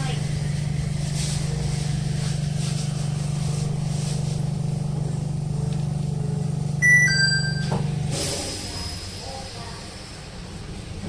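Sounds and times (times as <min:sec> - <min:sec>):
train interior hum: 0:00.0 - 0:11.0
two-note chime: 0:06.8 - 0:07.7.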